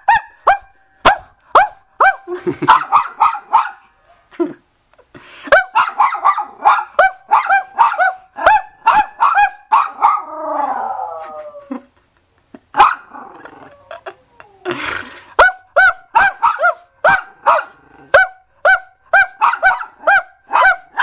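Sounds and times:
small dog barking: 0:00.1 - 0:03.9, 0:05.6 - 0:10.3, 0:12.8 - 0:13.2, 0:15.4 - 0:21.0.

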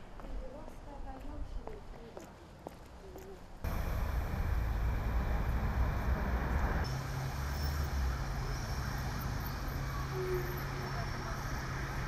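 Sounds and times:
cars driving past: 0:03.7 - 0:12.0.

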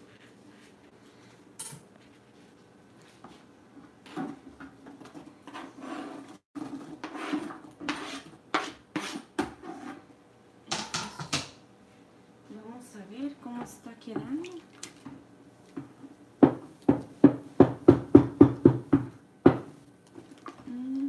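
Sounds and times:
knife scraping cutting board: 0:05.4 - 0:10.1.

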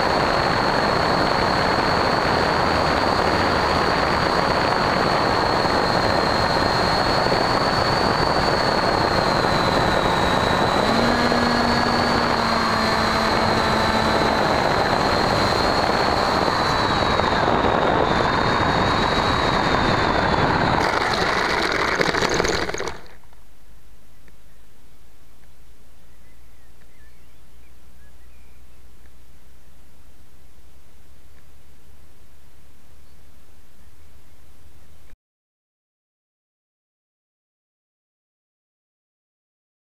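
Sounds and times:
wind rush: 0:00.0 - 0:23.1
electric motor whine: 0:00.0 - 0:23.2.

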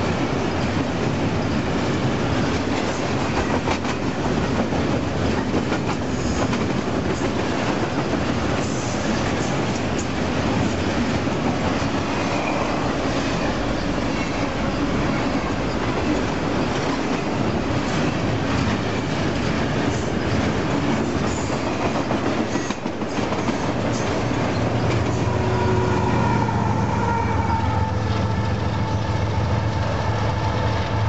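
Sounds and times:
diesel locomotive engine hum: 0:00.0 - 0:31.0
freight train rumbling past: 0:00.0 - 0:31.0.

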